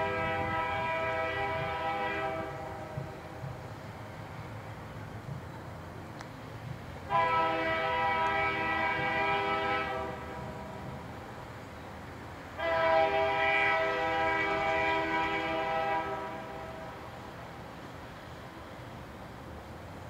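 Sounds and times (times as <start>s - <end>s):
locomotive air horn blasts: 0.0s - 3.0s, 7.0s - 10.7s, 12.6s - 17.1s.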